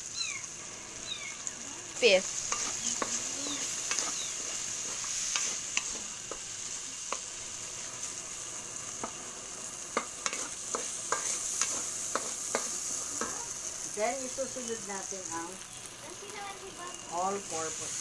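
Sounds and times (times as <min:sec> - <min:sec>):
food sizzling in oil: 0:00.0 - 0:18.0
wooden spatula scraping metal pan: 0:10.2 - 0:12.7.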